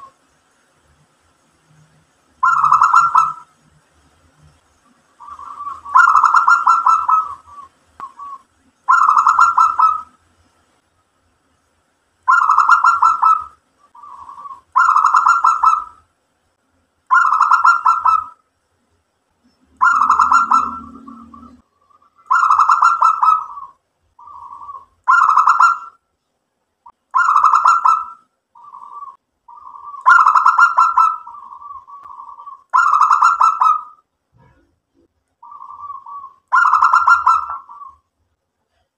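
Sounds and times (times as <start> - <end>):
dove cooing trilled phrases: 2.4 - 3.5, 5.2 - 10.2, 12.3 - 16.0, 17.1 - 18.4, 19.7 - 26.0, 27.1 - 34.6, 35.4 - 38.0.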